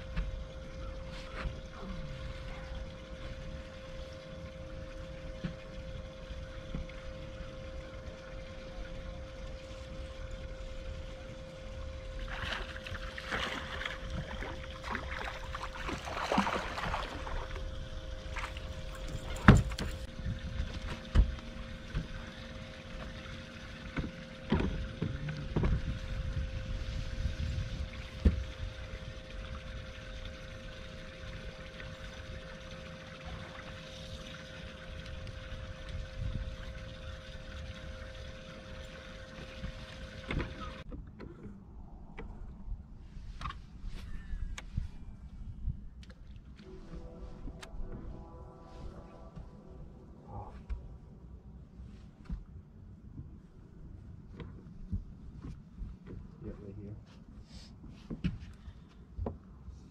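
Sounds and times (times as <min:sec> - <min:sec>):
electric trolling motor whine: 0:00.0 - 0:41.1, 0:46.4 - 0:51.8
water splashing: 0:12.1 - 0:20.1.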